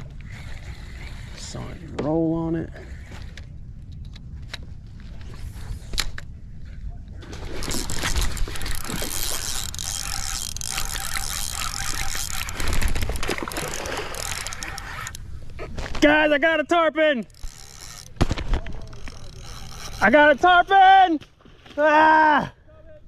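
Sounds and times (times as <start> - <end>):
fishing reel gears whirring: 0.0 - 4.2, 7.5 - 15.6, 16.9 - 18.2, 18.8 - 20.5
fishing reel clicks: 7.6 - 15.2, 17.2 - 18.2, 18.8 - 20.2.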